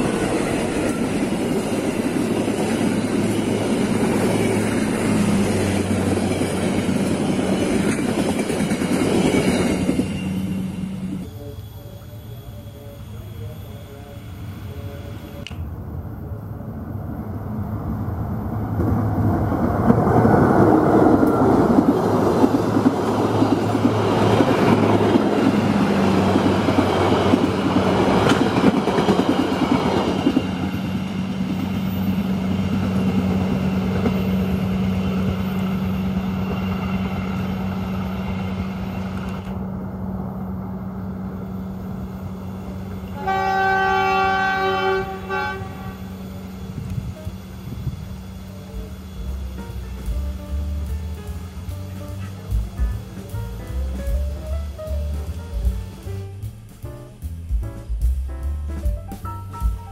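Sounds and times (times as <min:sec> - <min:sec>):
train wheels clacking on rails: 0:00.0 - 0:11.2, 0:18.8 - 0:39.6, 0:44.9 - 0:59.9
train horn pulses: 0:42.9 - 0:47.4, 0:48.6 - 0:54.6.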